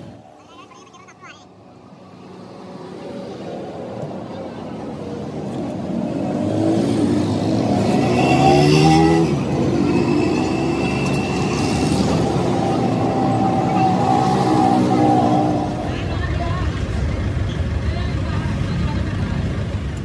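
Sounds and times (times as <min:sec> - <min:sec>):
vehicle engine running: 0:15.6 - 0:20.0.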